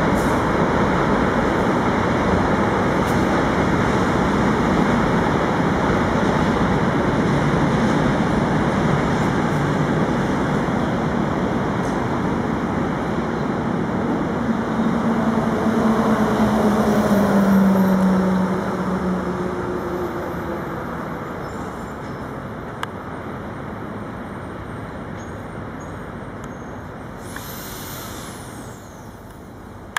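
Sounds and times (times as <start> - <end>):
traffic noise: 0.0 - 29.9
vehicle passing: 14.5 - 21.1.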